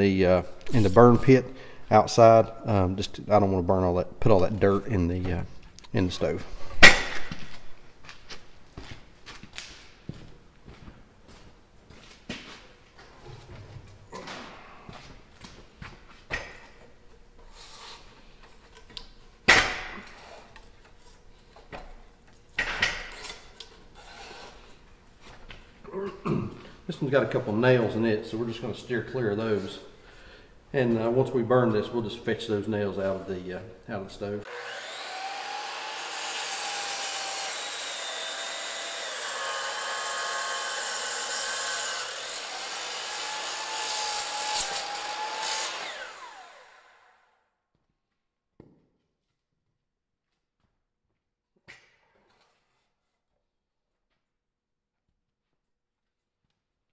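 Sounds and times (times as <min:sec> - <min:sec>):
saw blade winding down: 0:34.4 - 0:47.3
miter saw cutting wood: 0:34.4 - 0:47.4.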